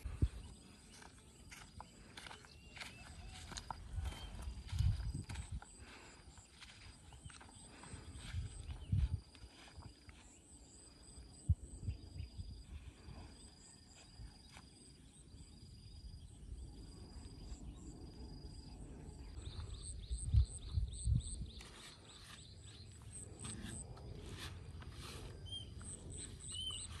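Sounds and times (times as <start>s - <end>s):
insects trilling: 13.4s - 27.0s.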